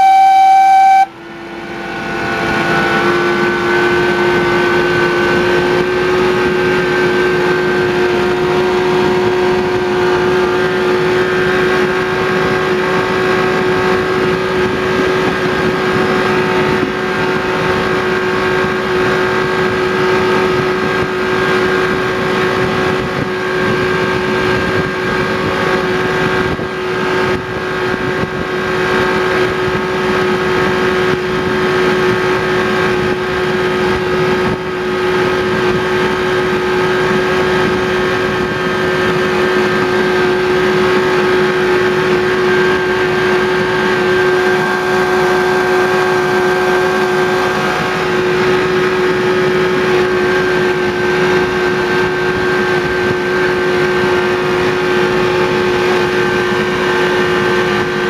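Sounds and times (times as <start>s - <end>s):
locomotive engine drone: 0.0s - 58.0s
train running noise: 0.0s - 58.0s.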